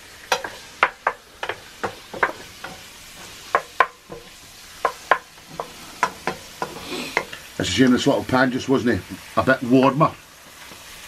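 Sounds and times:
spatula scraping frying pan: 0.0 - 7.6
meat sizzling in oil: 0.0 - 11.0.

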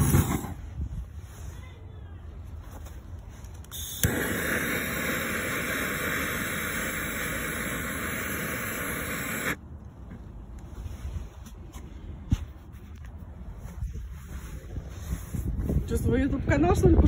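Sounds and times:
gas torch click: 3.6 - 9.6
torch flame hissing: 3.7 - 9.6.

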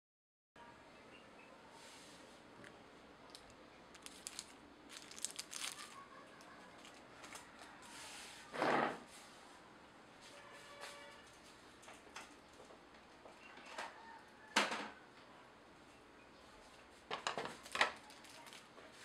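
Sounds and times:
crinkling rustles: 3.3 - 8.2, 17.0 - 19.0.

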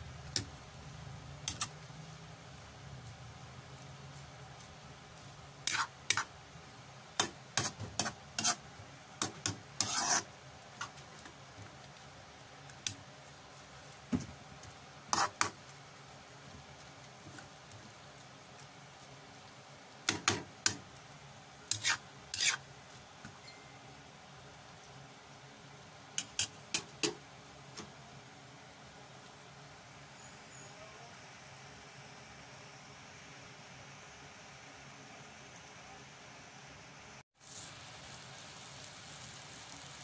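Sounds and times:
metal tongs scraping a pan: 5.6 - 6.3, 7.2 - 8.6, 9.2 - 10.3, 21.7 - 22.6.

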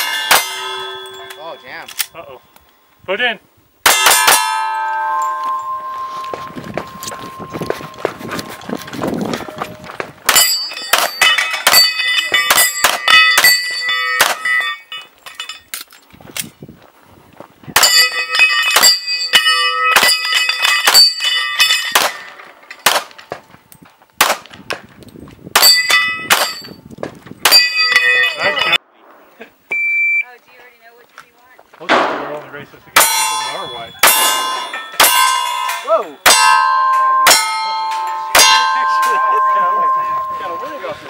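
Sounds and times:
steel target ringing: 0.0 - 1.9, 3.8 - 15.7, 17.8 - 22.9, 25.6 - 26.8, 27.4 - 29.0, 31.9 - 41.0
pistol shots: 31.9 - 33.2.

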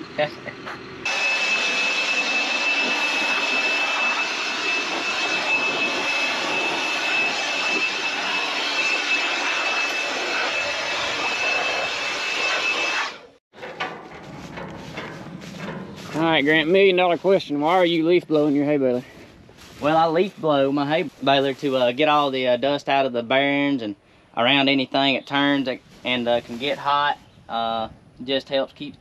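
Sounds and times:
leaf blower running: 0.1 - 13.1, 14.2 - 18.4.

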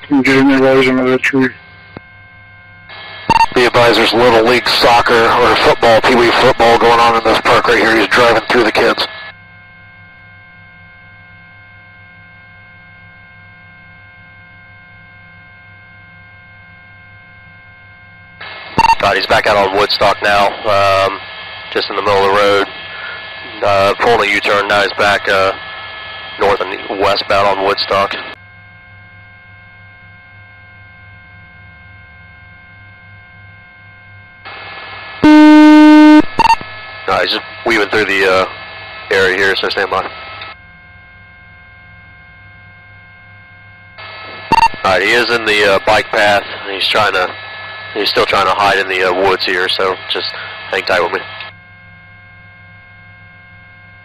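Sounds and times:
electrical hum: 0.0 - 54.0
faint fixed tones: 35.2 - 36.6.

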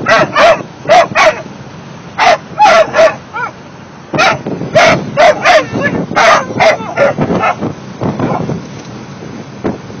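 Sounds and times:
puppies yelping barks: 0.0 - 1.5, 2.2 - 8.5.

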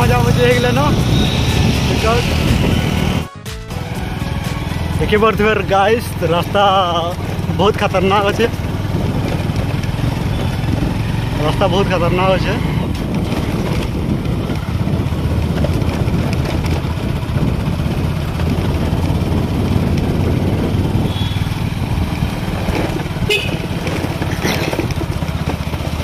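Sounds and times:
motorcycle engine running: 0.0 - 26.0
tyres over stony dirt track: 6.2 - 26.0.

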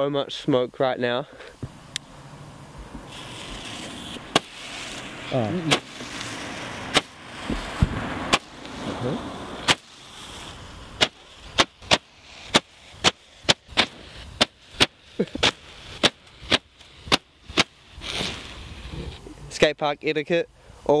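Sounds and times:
firework popping: 2.8 - 19.3.

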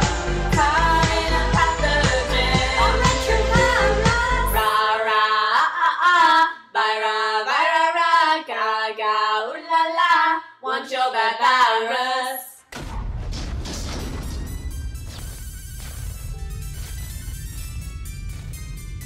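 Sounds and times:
pop backing track with heavy beat: 0.0 - 4.6
girls singing unaccompanied: 0.0 - 12.6.

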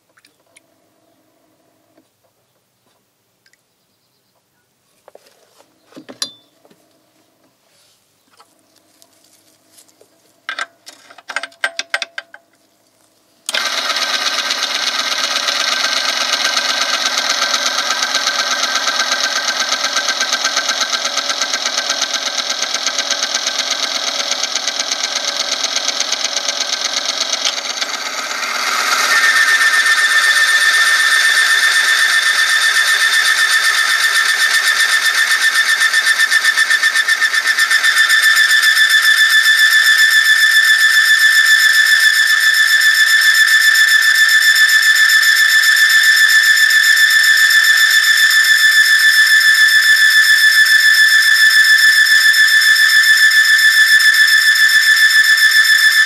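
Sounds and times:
machine grinding whine: 13.5 - 56.0
high squeal: 27.8 - 56.0.

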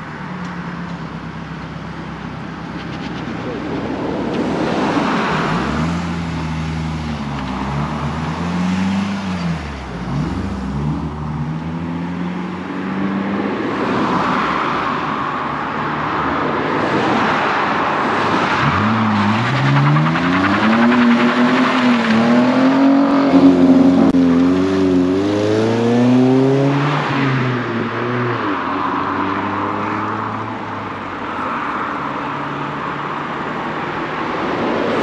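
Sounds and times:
car engines revving: 0.0 - 35.0
engine accelerating hard: 18.6 - 27.0.

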